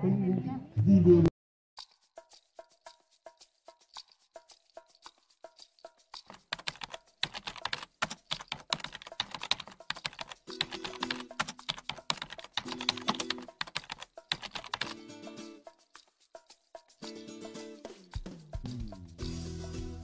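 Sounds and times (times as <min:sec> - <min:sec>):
background music: 0:01.8 - 0:20.0
keyboard typing: 0:06.2 - 0:15.0.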